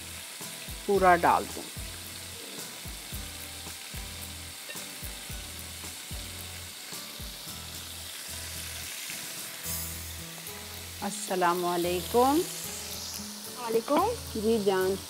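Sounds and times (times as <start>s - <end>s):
chicken sizzling in oil: 0.0s - 15.0s.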